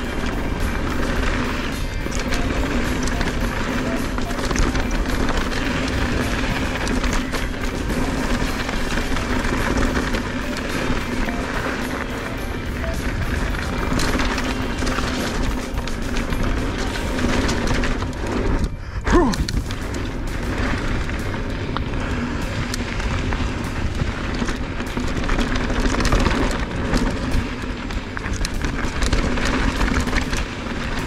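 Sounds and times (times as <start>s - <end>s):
bike rattling and knocking: 0.0s - 31.0s
bike tyres rolling over dirt: 0.0s - 31.0s
wind rushing over microphone: 12.0s - 31.0s.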